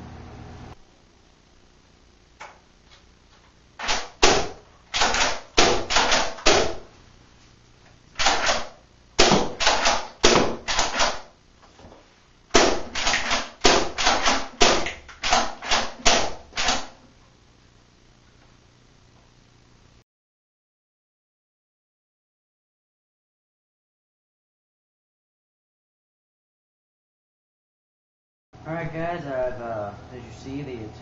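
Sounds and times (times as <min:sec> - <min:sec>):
toy blaster pumping and firing: 0:03.8 - 0:06.8, 0:08.2 - 0:11.3, 0:12.5 - 0:17.0.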